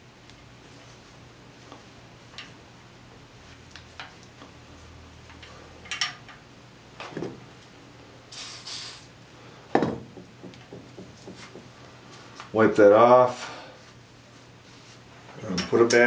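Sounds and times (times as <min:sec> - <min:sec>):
aerosol spray hiss: 0:08.3 - 0:09.1.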